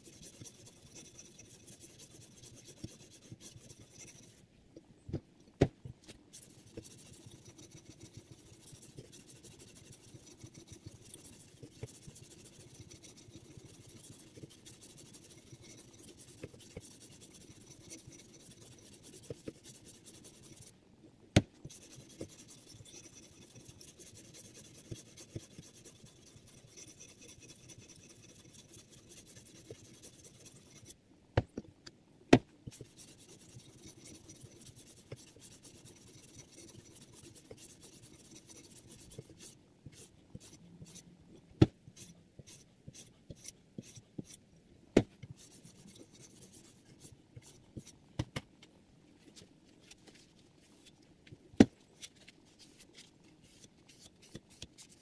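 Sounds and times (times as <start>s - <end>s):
sharpening stone rasping on knife: 6.4s - 20.7s, 21.7s - 30.9s, 32.7s - 41.0s, 42.0s - 44.4s.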